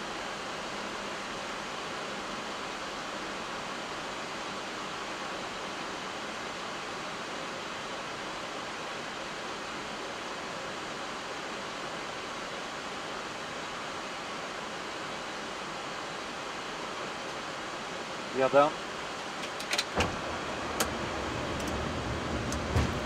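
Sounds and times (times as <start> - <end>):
rushing air in aircraft cockpit: 16.8 - 23.0.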